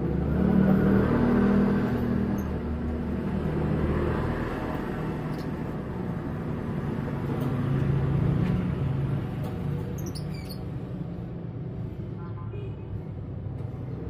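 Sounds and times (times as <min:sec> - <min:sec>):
high bird chirps: 0:10.0 - 0:10.7.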